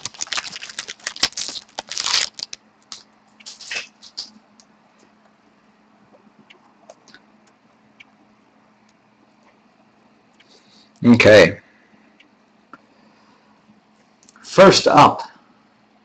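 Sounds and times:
foil wrapper tearing and crinkling: 0:00.0 - 0:04.3.

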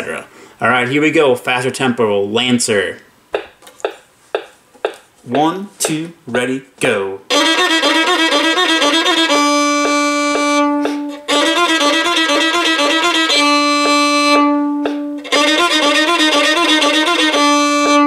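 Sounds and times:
metronome ticking: 0:03.3 - 0:06.6, 0:07.3 - 0:18.0
solo violin exercise: 0:05.3 - 0:18.0.

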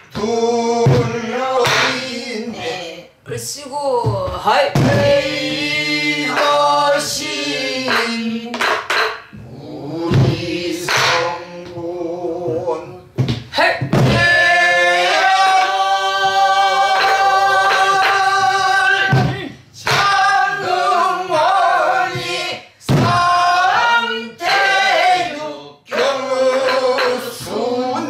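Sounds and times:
group singing folk song: 0:00.0 - 0:03.2, 0:04.4 - 0:28.0
barrel drum struck: 0:13.9 - 0:14.4.

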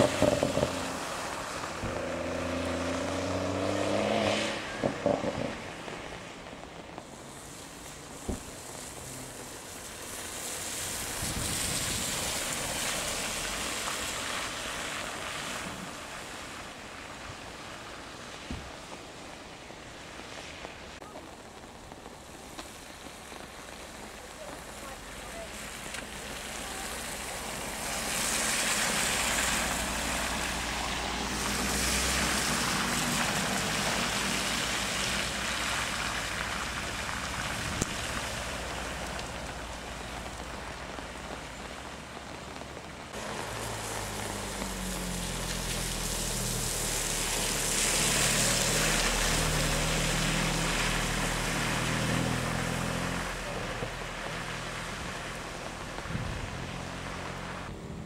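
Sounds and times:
car engine revving: 0:00.0 - 0:05.8, 0:43.2 - 0:57.8
tyres splashing through water: 0:00.0 - 0:57.9.

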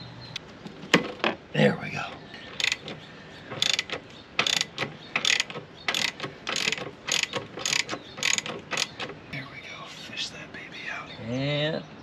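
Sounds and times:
socket ratchet clicking: 0:02.6 - 0:03.0, 0:03.6 - 0:09.1.

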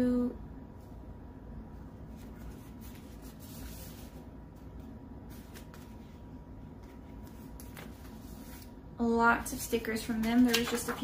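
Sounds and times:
low room hum: 0:00.0 - 0:11.0
paper pages rustling: 0:02.1 - 0:08.7, 0:10.0 - 0:11.0.

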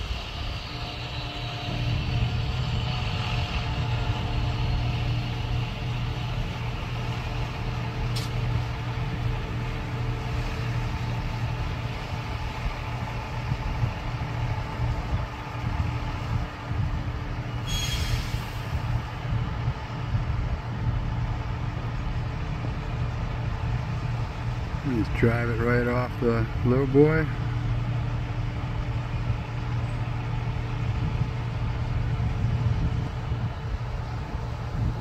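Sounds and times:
diesel machinery idling: 0:00.0 - 0:35.0
short hiss: 0:17.7 - 0:18.7.

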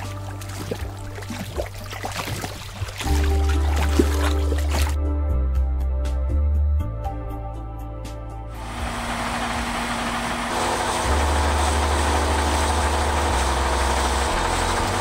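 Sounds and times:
diesel truck engine drone: 0:08.5 - 0:15.0
loud rushing hiss: 0:08.6 - 0:15.0.

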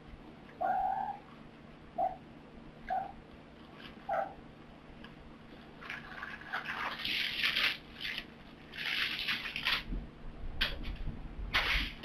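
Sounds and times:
crinkly rustling: 0:05.6 - 0:10.0, 0:10.8 - 0:12.0.

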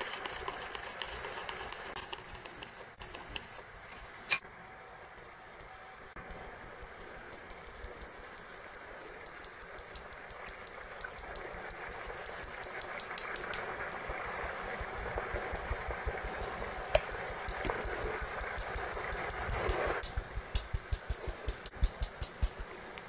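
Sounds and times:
batter mixing in a bowl: 0:00.0 - 0:04.3
utensil clicking against bowl: 0:06.8 - 0:14.1, 0:16.9 - 0:23.0.

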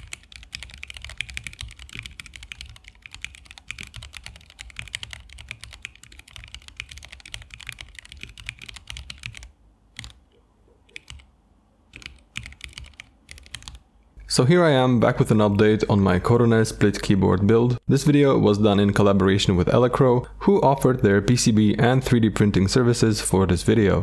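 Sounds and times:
fast typing on mechanical keyboard: 0:00.0 - 0:10.2, 0:10.9 - 0:11.3, 0:11.9 - 0:13.8.

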